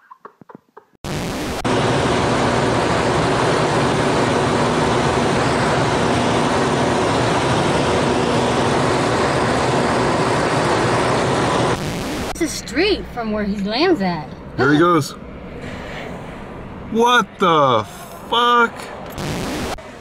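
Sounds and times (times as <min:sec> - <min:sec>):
propeller engine running: 0:01.4 - 0:20.0
tv static hiss: 0:11.7 - 0:12.4, 0:19.2 - 0:19.8.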